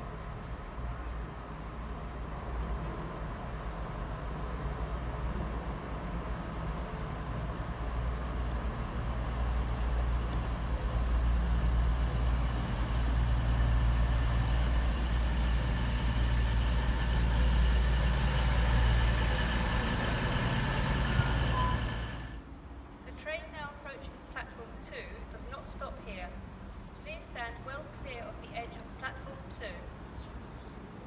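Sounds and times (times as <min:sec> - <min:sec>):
diesel train engine droning: 0:00.0 - 0:30.1
thin whining tones: 0:12.2 - 0:22.4.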